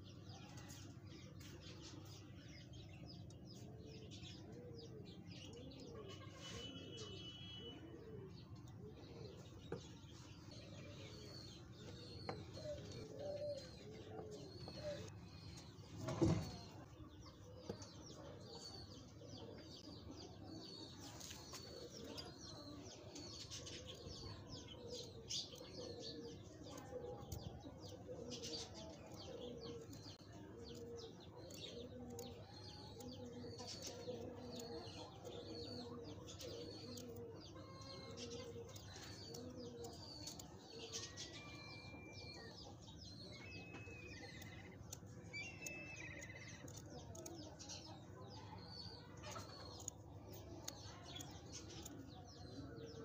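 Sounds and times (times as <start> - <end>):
bird cooing: 11.1 - 15.1, 23.8 - 47.6
high bird chirps: 39.9 - 47.2.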